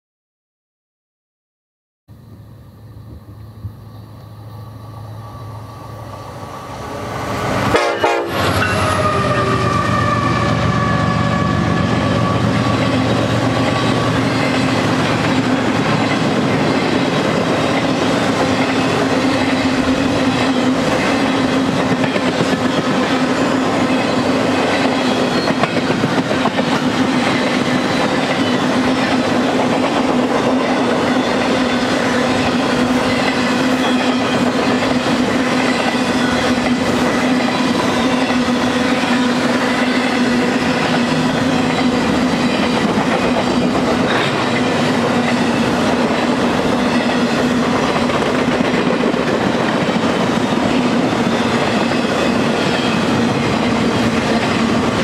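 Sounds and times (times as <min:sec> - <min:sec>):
freight train passing: 0:02.1 - 0:55.0
rail cars rolling on rails: 0:02.2 - 0:55.0
locomotive air horn: 0:07.5 - 0:13.2.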